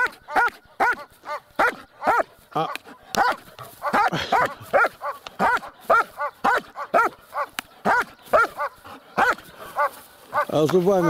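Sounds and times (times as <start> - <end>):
dog barking excitedly: 0.0 - 11.0.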